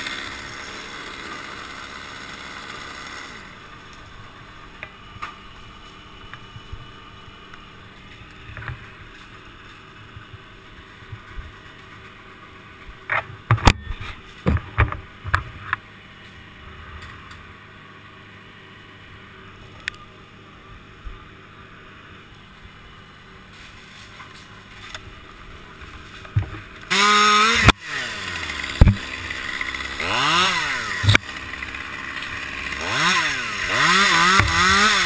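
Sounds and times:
low steady hum: 0:03.4 - 0:26.9.

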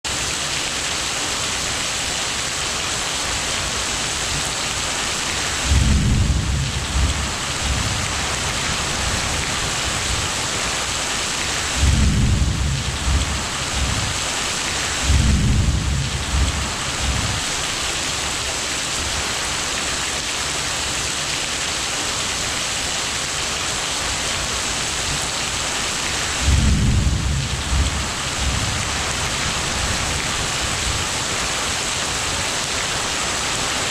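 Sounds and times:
rain hissing: 0:00.1 - 0:33.9
low rolls of thunder: 0:05.6 - 0:10.3, 0:11.7 - 0:14.2, 0:14.9 - 0:17.4, 0:26.3 - 0:31.0.

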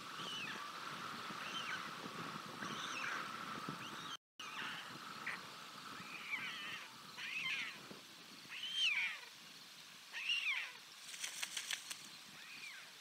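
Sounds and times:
quick run of ticks: 0:11.0 - 0:12.2.

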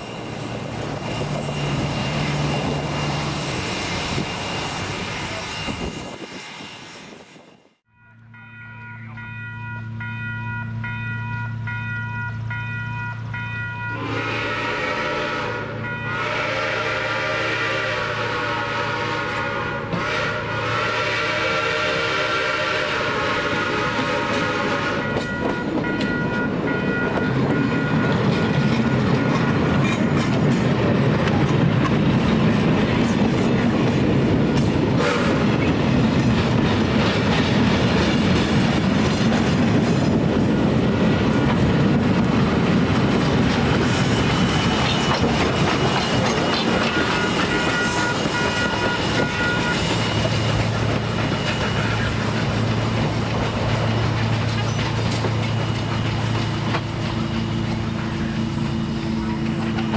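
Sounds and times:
freight train approaching: 0:00.0 - 0:59.9
bell ringing: 0:07.9 - 0:14.0
steam whistle blasts: 0:13.8 - 0:25.5, 0:35.0 - 0:35.6, 0:46.9 - 0:50.2.

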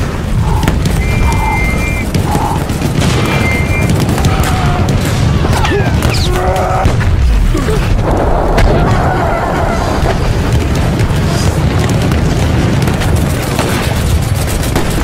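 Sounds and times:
explosions: 0:00.0 - 0:15.0
low rumble: 0:00.0 - 0:15.0
weapon fire: 0:00.0 - 0:15.0.

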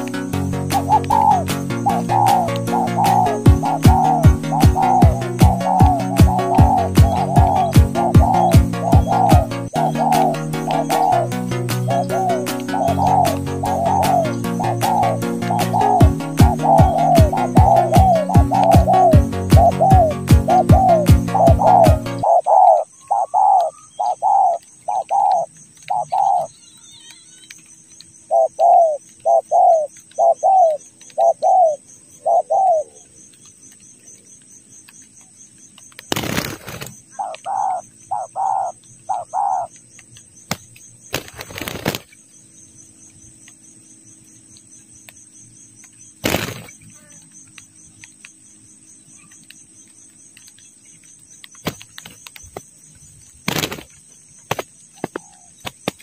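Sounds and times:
wings flapping: 0:00.0 - 0:22.7, 0:35.8 - 0:42.2, 0:46.2 - 0:48.1, 0:51.4 - 0:56.0
dove calling: 0:00.0 - 0:56.0.

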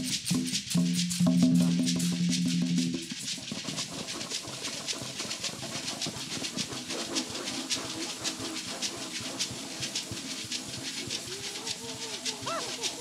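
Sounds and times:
shaken hand percussion jingle: 0:00.0 - 0:06.4, 0:08.6 - 0:13.0.

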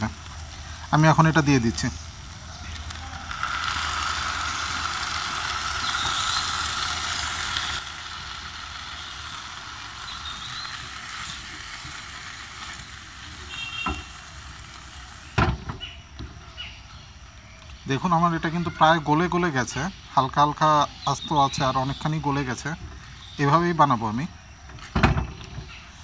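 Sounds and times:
food sizzling in a pan: 0:00.0 - 0:24.2.

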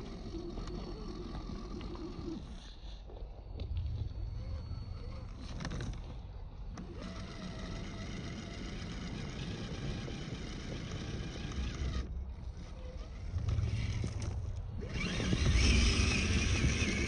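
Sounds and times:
electric motor whining: 0:00.0 - 0:02.7, 0:03.7 - 0:17.0.

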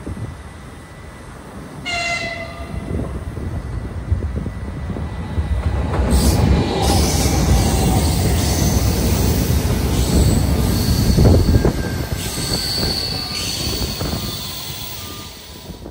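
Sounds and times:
train wheels rumbling on rails: 0:00.0 - 0:15.9
high wheel squeal: 0:06.1 - 0:15.9.

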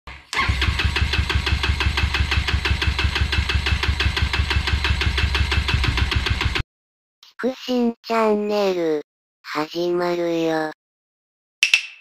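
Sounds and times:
scooter engine pulsing: 0:00.1 - 0:06.6.

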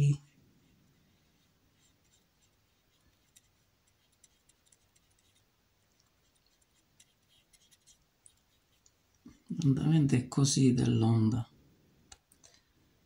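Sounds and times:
paintbrush dabbing on canvas: 0:00.6 - 0:09.3.

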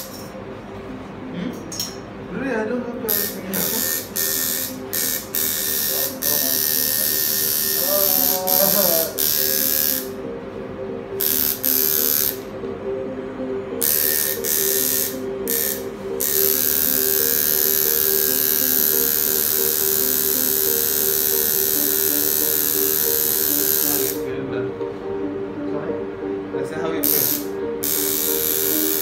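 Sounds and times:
tattoo machine buzzing: 0:00.0 - 0:00.3, 0:03.1 - 0:10.2, 0:11.2 - 0:12.4, 0:13.8 - 0:24.3, 0:27.0 - 0:29.0.

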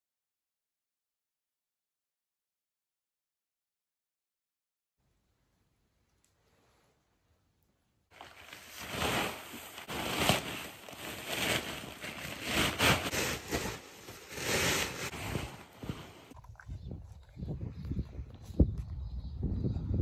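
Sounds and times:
wind buffeting microphone: 0:16.3 - 0:20.0.

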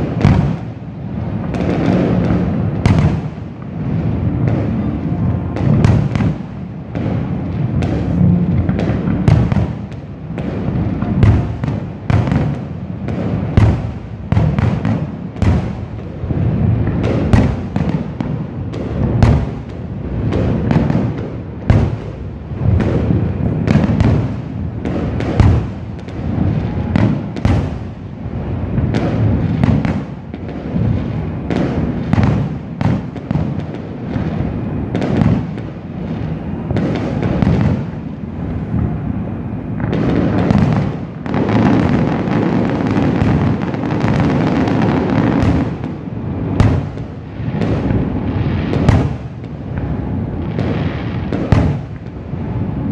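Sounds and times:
firework shells bursting: 0:01.4 - 0:28.0
low rumble: 0:03.8 - 0:09.6.

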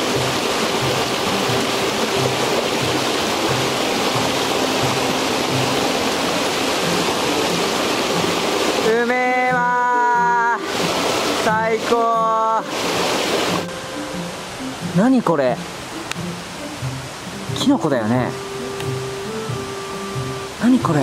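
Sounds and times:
stream rushing over rocks: 0:00.0 - 0:21.0
person calling ahh: 0:08.9 - 0:10.7
background music beat: 0:15.6 - 0:20.6.

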